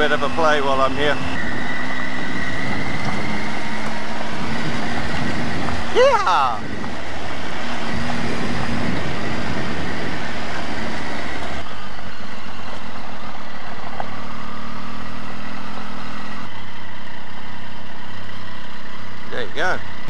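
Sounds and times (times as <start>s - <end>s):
motorcycle engine running: 0.0s - 20.0s
wind noise on microphone: 1.4s - 11.7s.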